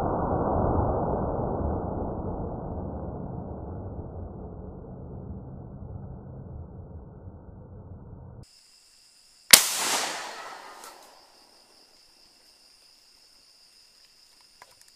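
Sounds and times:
low rumble: 0.0s - 8.4s
night insects chorus: 8.4s - 14.9s
rifle shot with echo: 9.5s - 11.2s.

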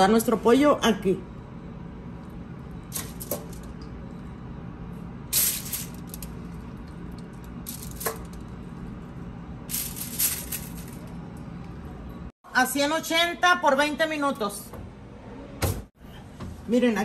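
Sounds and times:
steady low hum: 0.0s - 12.4s.

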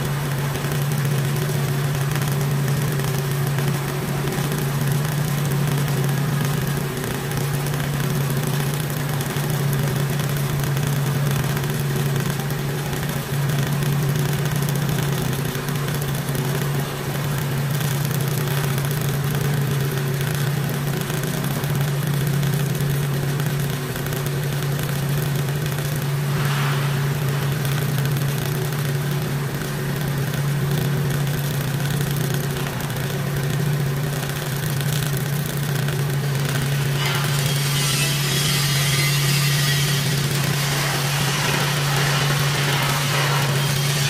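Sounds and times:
welding arc hissing and crackling: 0.1s - 44.0s
low hum: 25.8s - 30.2s.

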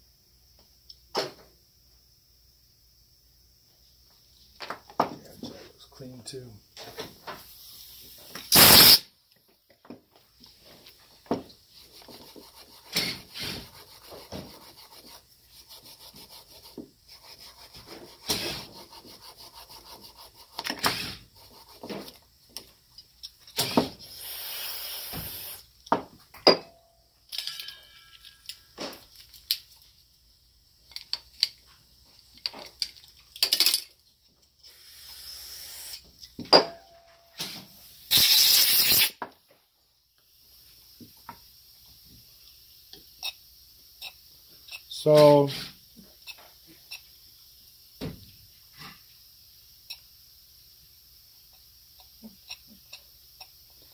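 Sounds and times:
hissing bursts: 7.3s - 9.1s, 23.6s - 25.8s, 34.6s - 36.3s, 37.4s - 39.2s
small parts clicking and rubbing: 27.2s - 30.0s, 30.8s - 34.7s, 51.5s - 53.9s.

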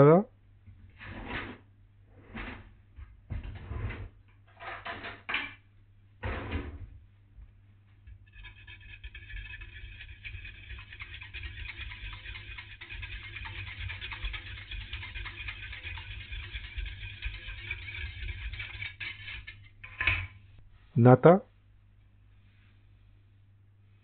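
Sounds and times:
whisk ticking against metal pan: 8.1s - 19.7s.

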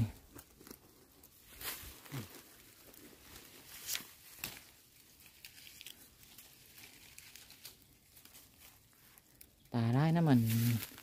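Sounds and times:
leaves and twigs rustling: 0.0s - 11.0s
twigs snapping: 2.8s - 9.6s.

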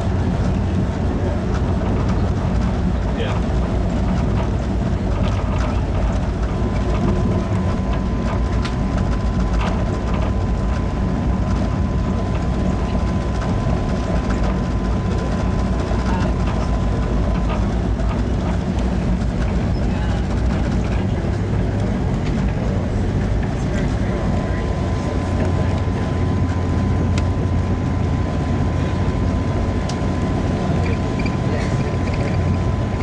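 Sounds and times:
train rumble and rail noise: 0.0s - 33.0s
rail clicks: 0.4s - 28.0s
freight train passing: 12.0s - 33.0s.

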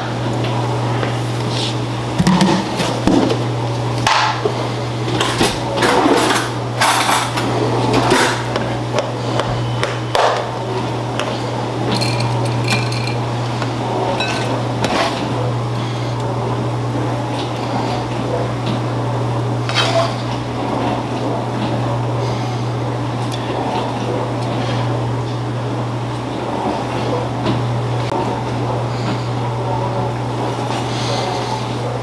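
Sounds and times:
steady low hum: 0.0s - 32.0s
kitchen utensils knocking and scraping: 11.9s - 13.3s, 14.1s - 15.2s.

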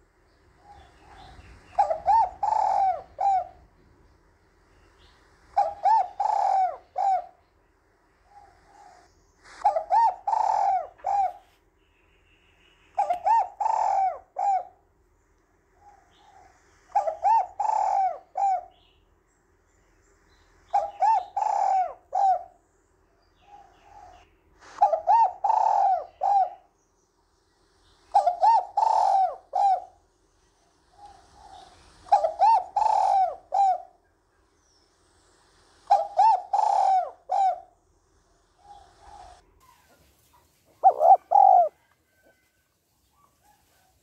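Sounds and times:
dove cooing: 0.6s - 3.8s, 5.5s - 7.4s, 8.2s - 11.5s, 13.0s - 14.9s, 15.8s - 18.9s, 20.7s - 22.6s, 23.4s - 26.8s, 28.1s - 34.1s, 35.8s - 37.8s, 38.4s - 40.0s, 40.7s - 42.5s.

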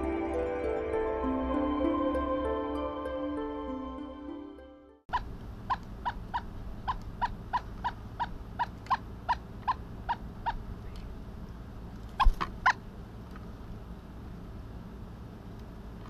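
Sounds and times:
woodpecker calling: 5.1s - 11.0s.

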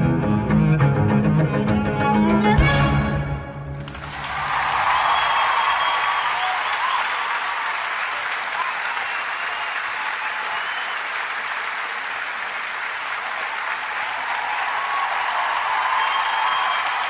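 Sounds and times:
audience applause: 3.8s - 17.0s.

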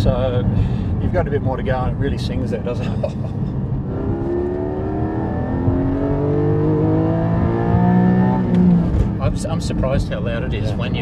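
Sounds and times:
car engine accelerating hard: 3.7s - 11.0s.

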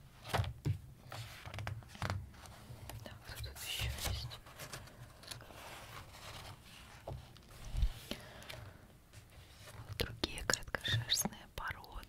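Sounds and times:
paper page rustling and sliding: 3.8s - 8.6s.

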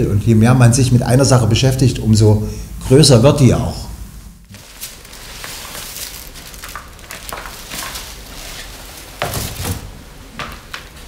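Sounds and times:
paper sheets rustling and flapping: 4.5s - 11.0s.

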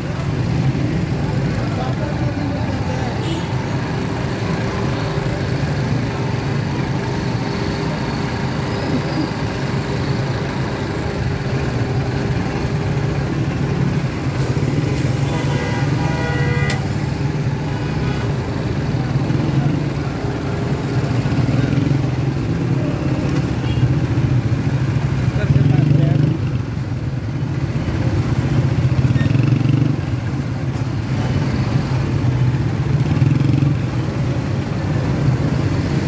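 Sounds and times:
street traffic: 0.0s - 36.0s
vehicle horn: 15.2s - 16.9s.

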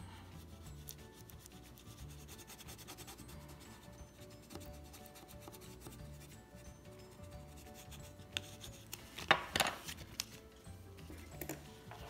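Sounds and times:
quiet background music: 0.0s - 12.0s
tool rubbing on tissue: 0.4s - 6.4s, 7.1s - 9.2s.

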